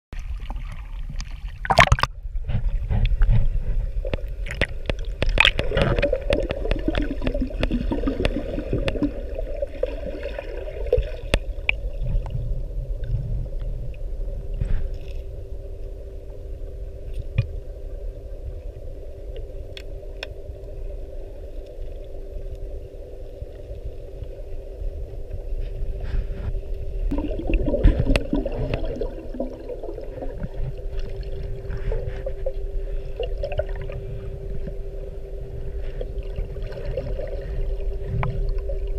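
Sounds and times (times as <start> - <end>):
muffled underwater rumble: 0.1 - 38.9
water sloshing: 0.2 - 12.4, 27.1 - 34.9
steady hum: 0.2 - 38.9.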